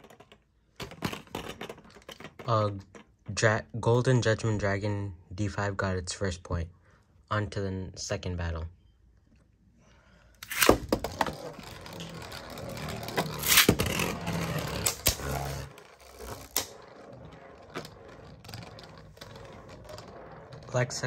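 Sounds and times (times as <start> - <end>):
spinning tops whirring on plastic: 10.4 - 20.8.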